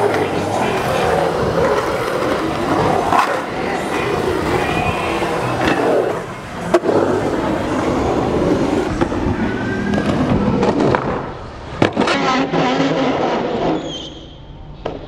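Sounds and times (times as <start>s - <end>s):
skateboard clacking on coping: 0.0s - 11.2s
skateboard wheels rolling on concrete: 0.0s - 15.0s.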